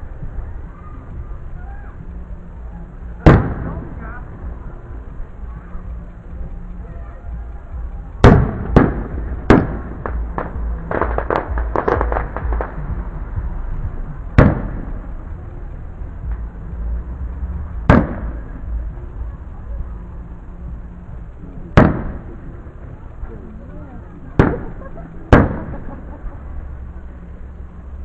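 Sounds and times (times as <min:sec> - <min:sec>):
firework crackling pops: 0:03.1 - 0:04.4, 0:07.8 - 0:15.3, 0:17.6 - 0:19.0, 0:21.3 - 0:23.2, 0:24.2 - 0:26.0
firework bangs: 0:03.2 - 0:04.1, 0:08.2 - 0:13.0, 0:14.3 - 0:15.1, 0:17.8 - 0:18.6, 0:21.7 - 0:22.5, 0:24.4 - 0:25.9.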